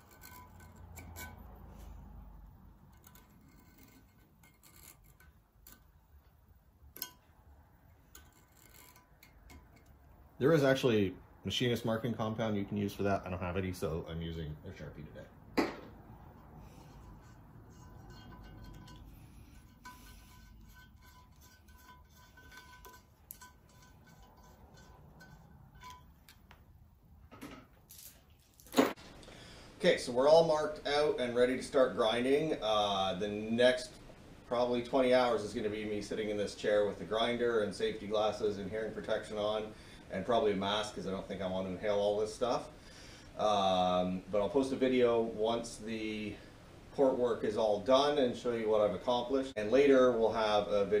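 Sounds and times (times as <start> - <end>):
metal scribe scratching metal: 0.0 - 6.1, 7.9 - 10.2, 16.2 - 26.4.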